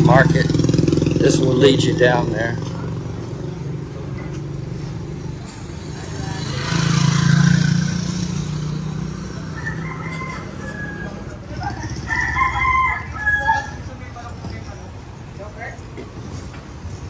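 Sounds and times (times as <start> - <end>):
motorcycle passing: 0.0 - 15.4
traffic engine hum: 0.0 - 17.0
rooster crowing: 9.2 - 13.9.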